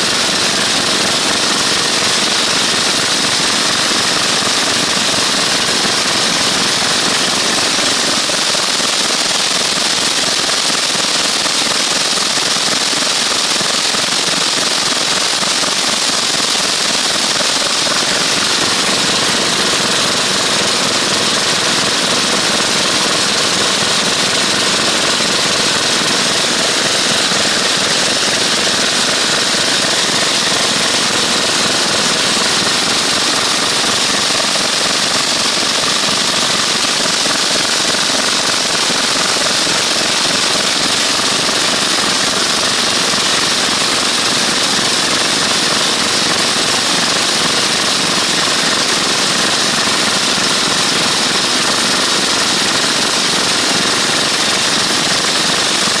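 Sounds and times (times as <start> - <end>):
boat engine running: 16.7 - 37.3.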